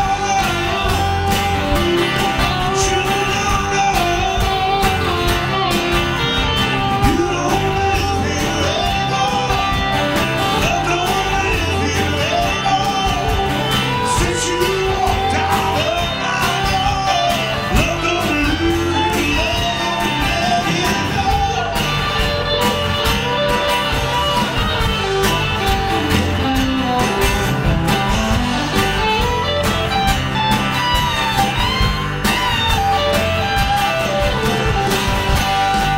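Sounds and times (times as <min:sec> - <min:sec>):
man singing: 0:00.0 - 0:05.6, 0:06.8 - 0:22.8
bass guitar: 0:00.0 - 0:35.9
electric guitar: 0:00.0 - 0:35.9
strummed acoustic guitar: 0:00.0 - 0:35.9.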